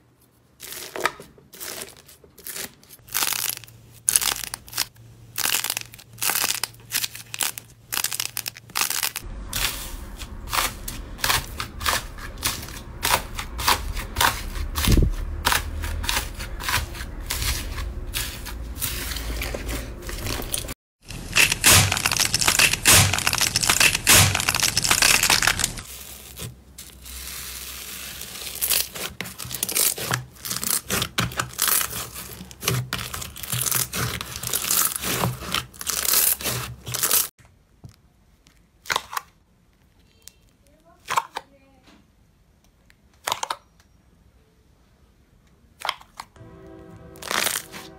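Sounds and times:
slime crackling when kneaded: 0:01.6 - 0:09.2, 0:20.2 - 0:26.5.

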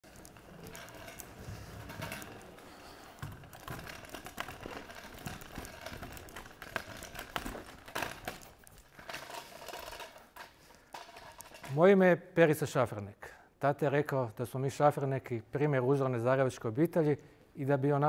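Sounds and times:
scooter rolling over stone paving: 0:00.0 - 0:11.7.

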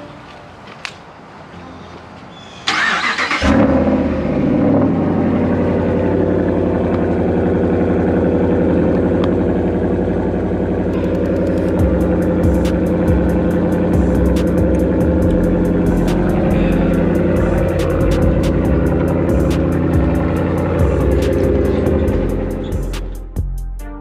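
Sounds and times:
vehicle engine starting and idling: 0:02.6 - 0:23.6.

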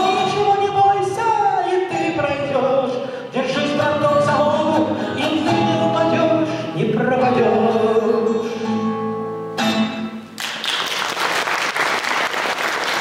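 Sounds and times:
man singing: 0:00.0 - 0:09.1
acoustic guitar: 0:00.0 - 0:11.0
audience applause: 0:10.4 - 0:13.0.

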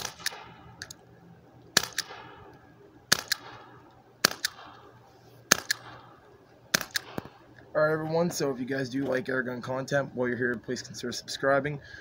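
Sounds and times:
air revolver shots: 0:00.0 - 0:00.9, 0:01.8 - 0:02.5, 0:03.1 - 0:04.9, 0:05.5 - 0:06.1, 0:06.7 - 0:07.4.

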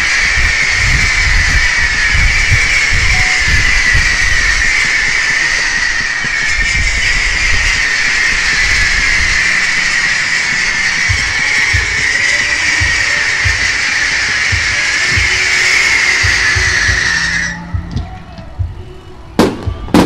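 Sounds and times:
fireworks hissing: 0:00.0 - 0:17.9, 0:18.6 - 0:20.0
dull low thumps: 0:16.2 - 0:20.0.

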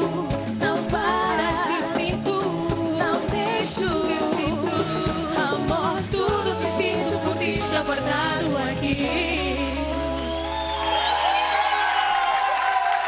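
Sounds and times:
steady drum beat: 0:00.0 - 0:09.9
women singing with vibrato: 0:00.0 - 0:10.3
bass: 0:00.0 - 0:13.0.

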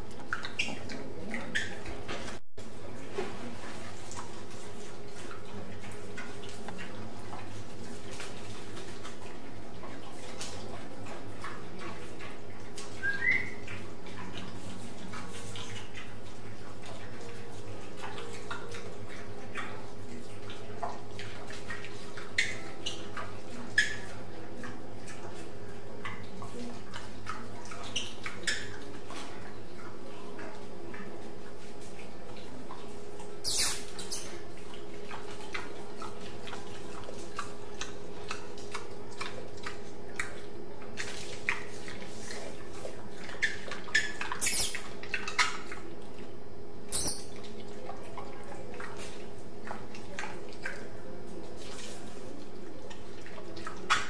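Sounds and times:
pig hooves tapping on tile floor: 0:03.0 - 0:46.2.

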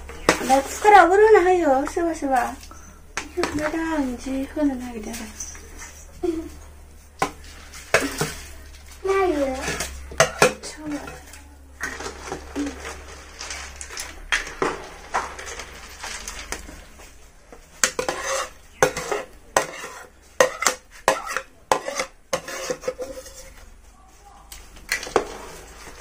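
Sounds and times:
metal ladle scraping a wok: 0:09.4 - 0:11.2, 0:17.8 - 0:23.6.

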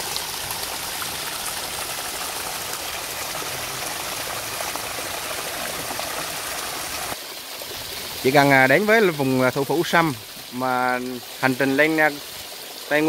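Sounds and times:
water flowing over rocks: 0:00.0 - 0:13.0.

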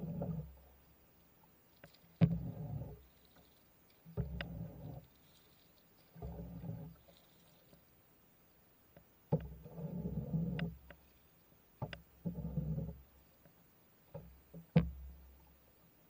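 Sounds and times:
paddle swishing through water: 0:00.0 - 0:08.1, 0:09.3 - 0:13.5
paddle knocking against boat: 0:02.1 - 0:03.1, 0:04.1 - 0:05.0, 0:06.2 - 0:07.0, 0:14.1 - 0:15.4.

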